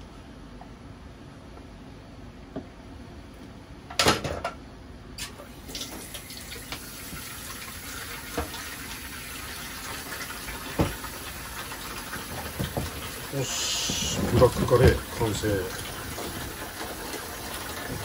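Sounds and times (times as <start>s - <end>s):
tap running into sink: 8.2s - 8.6s, 10.6s - 11.2s, 12.2s - 18.0s.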